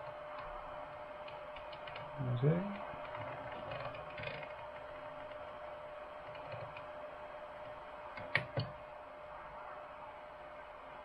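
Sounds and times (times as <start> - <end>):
faint steady hum: 0.0 - 11.0
rotary knob clicks: 3.0 - 5.4.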